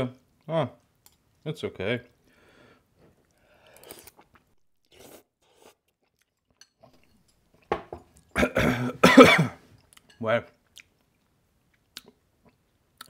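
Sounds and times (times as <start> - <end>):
person slurping and chewing noodles: 3.0 - 6.9.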